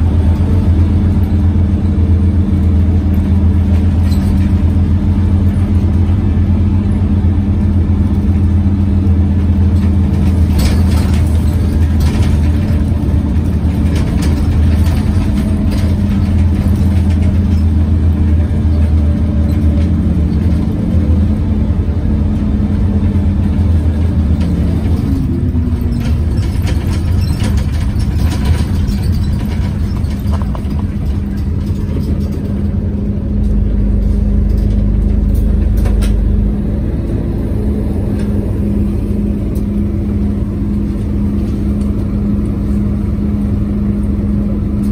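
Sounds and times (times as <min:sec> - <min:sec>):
engine cooling fan humming: 0:00.0 - 0:44.9
clicks and rattles: 0:23.7 - 0:36.3.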